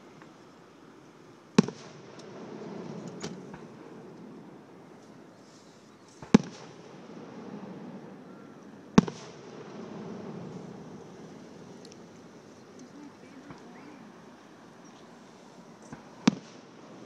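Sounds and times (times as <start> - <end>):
firework crack: 1.2 - 17.0
firework shells booming: 1.5 - 5.2, 6.2 - 13.8, 15.9 - 17.0.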